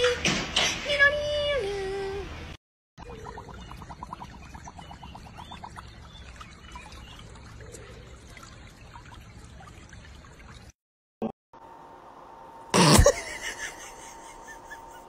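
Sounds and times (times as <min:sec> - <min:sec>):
water trickling in a stream: 0:03.0 - 0:10.8.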